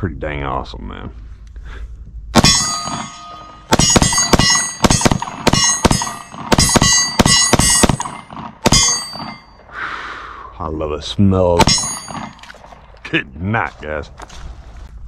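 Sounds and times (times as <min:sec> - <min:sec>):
pistol shots: 0:02.4 - 0:09.4, 0:11.6 - 0:12.8
metallic clang of steel target: 0:02.4 - 0:09.6, 0:11.6 - 0:12.6.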